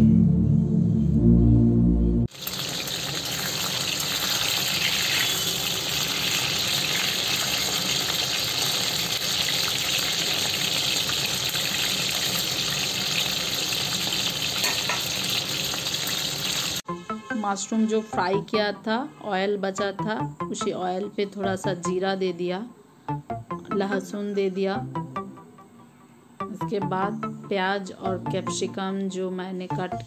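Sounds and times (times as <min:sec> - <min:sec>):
background music: 0:00.0 - 0:02.3, 0:16.8 - 0:30.0
food deep-frying in oil: 0:02.3 - 0:16.8.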